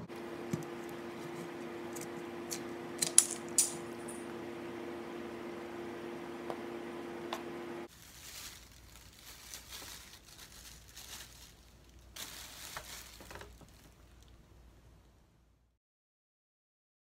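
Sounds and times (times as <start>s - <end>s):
steady hum: 0.0s - 7.9s
plastic bag rustling: 7.9s - 14.4s.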